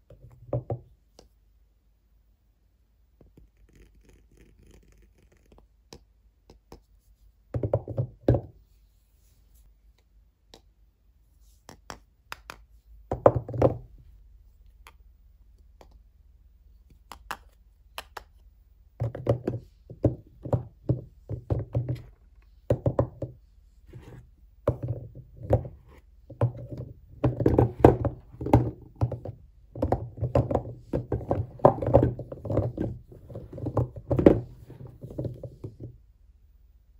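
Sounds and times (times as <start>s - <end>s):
soap bars knocking together: 11.7s - 13.9s, 19.0s - 23.4s, 24.6s - 36.0s.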